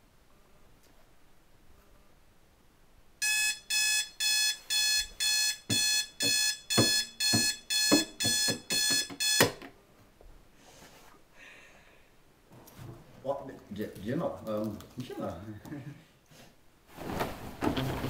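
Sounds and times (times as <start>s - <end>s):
alarm clock beeping: 3.2s - 9.6s
thud of alarm switched off: 3.2s - 9.6s.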